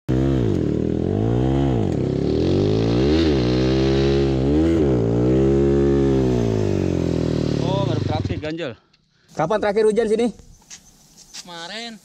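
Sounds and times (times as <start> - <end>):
motorbike engine revving: 0.1 - 8.5.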